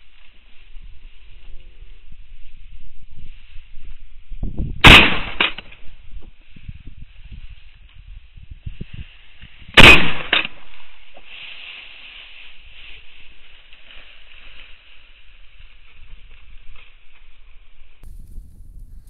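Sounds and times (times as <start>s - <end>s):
loud shotgun shot: 4.8s - 5.7s, 9.7s - 10.7s.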